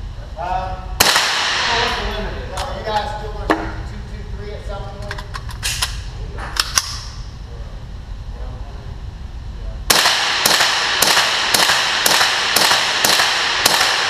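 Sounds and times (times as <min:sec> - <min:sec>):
rifle shots echoing indoors: 0:01.0 - 0:02.2, 0:05.6 - 0:07.2, 0:09.9 - 0:14.0.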